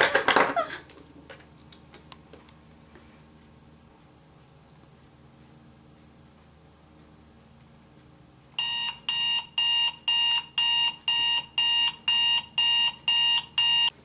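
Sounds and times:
electronic timer alarm beeping: 8.6 - 14.0.

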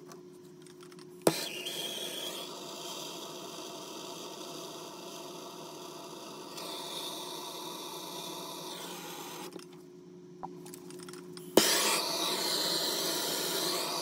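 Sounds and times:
faint hum: 0.0 - 14.0
soldering torch hissing: 1.2 - 9.6, 11.5 - 14.0.

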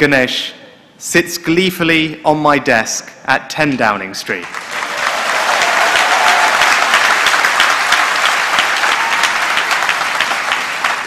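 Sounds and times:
large audience applauding: 4.4 - 11.0.

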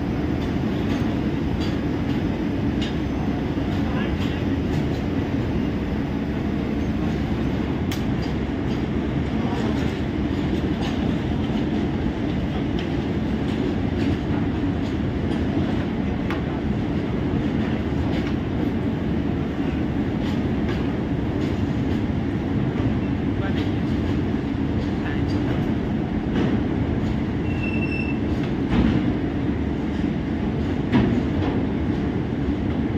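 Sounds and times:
electric locomotive humming: 0.0 - 32.9.

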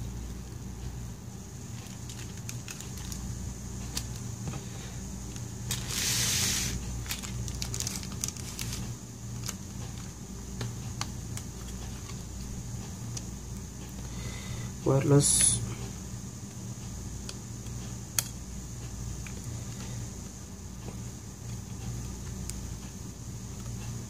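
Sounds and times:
steady low hum: 0.0 - 24.0
short hiss: 5.8 - 6.8.

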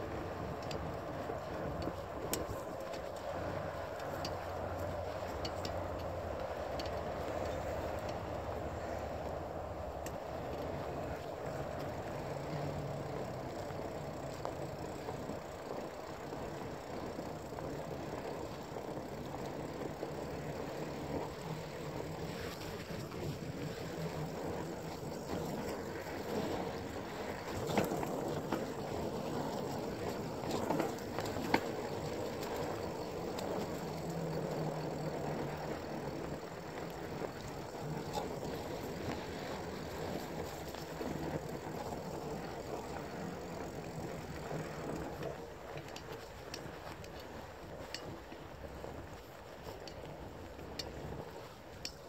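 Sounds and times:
bike knocking and rattling: 0.0 - 52.0
bike tyres rushing on dirt: 0.0 - 52.0.

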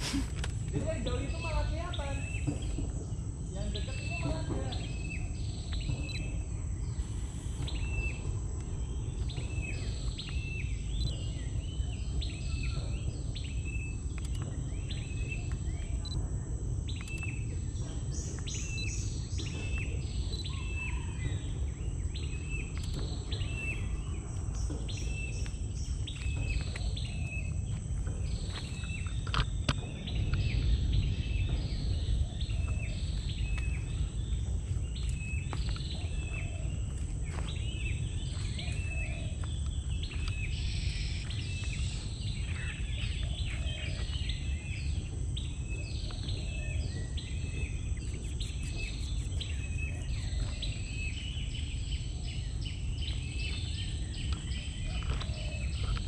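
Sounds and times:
birds chirping: 0.0 - 56.0
high insect tone: 0.0 - 56.0
sharp click: 14.1 - 14.5.

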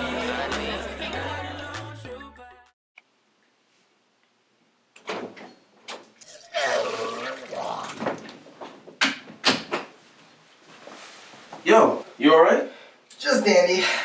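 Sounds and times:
man retching and vomiting: 6.2 - 8.2.

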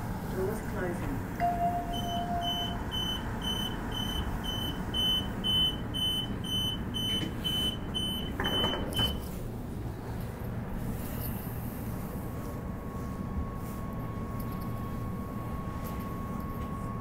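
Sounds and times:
train hum: 0.0 - 8.0
low warning tone: 1.3 - 8.3
train door warning beeps: 1.4 - 9.3.

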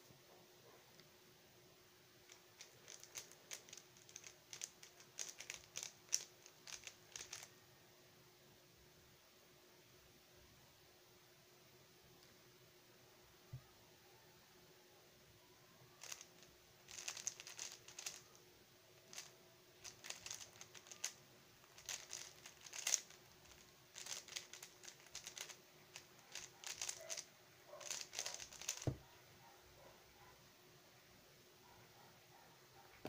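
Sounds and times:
plastic cube clicking: 2.3 - 7.5, 16.0 - 18.2, 19.1 - 29.0.

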